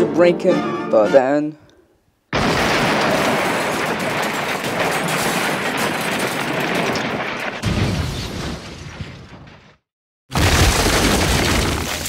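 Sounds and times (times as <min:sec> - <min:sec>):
crashing clattering metal: 0:02.4 - 0:07.9.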